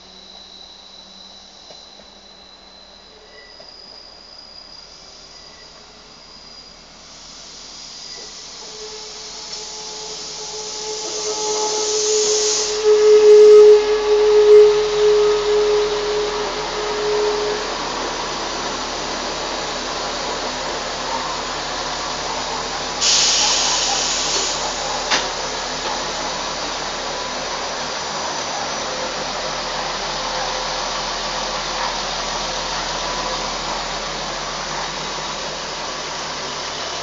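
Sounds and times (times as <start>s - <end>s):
steady squeal: 0.0s - 37.0s
train diesel engine running: 0.0s - 37.0s
compressed air hiss: 7.1s - 13.2s, 23.0s - 25.3s.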